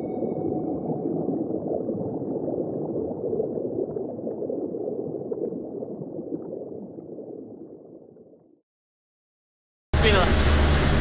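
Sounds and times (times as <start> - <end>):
muffled underwater rushing water: 0.0 - 8.6.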